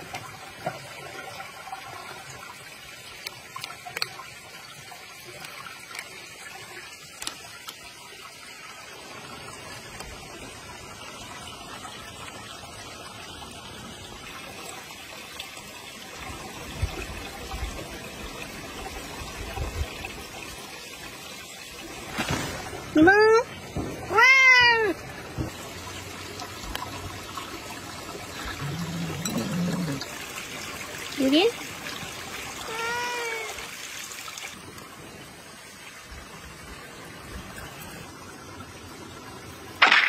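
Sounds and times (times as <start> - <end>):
cat meowing: 32.6 - 33.7.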